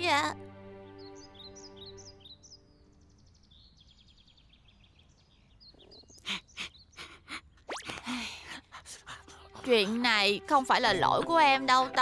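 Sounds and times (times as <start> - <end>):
cartoon birds chirping: 5.6 - 8.5.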